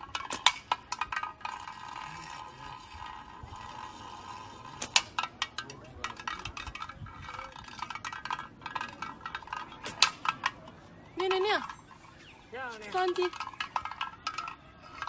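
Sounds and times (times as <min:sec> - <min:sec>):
slingshot bands snapping: 0:00.0 - 0:01.9, 0:04.7 - 0:05.6, 0:09.4 - 0:10.6.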